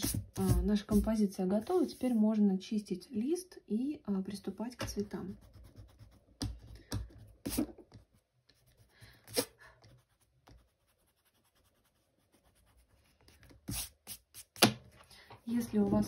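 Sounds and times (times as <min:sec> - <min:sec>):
hand rubbing paper: 0:07.4 - 0:07.8, 0:08.5 - 0:14.6.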